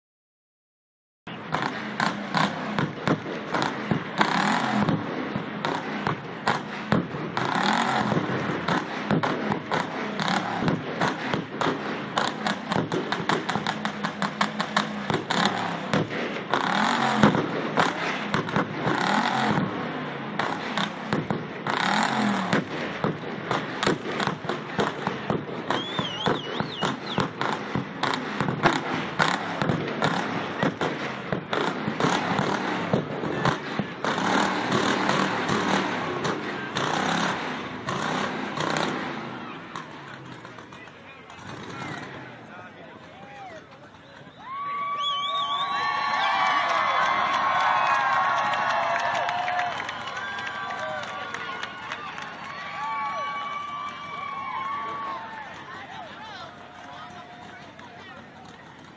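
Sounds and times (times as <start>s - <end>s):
truck engine revving: 1.3s - 43.1s
crackling exhaust pops: 20.4s - 37.2s, 39.7s - 44.4s.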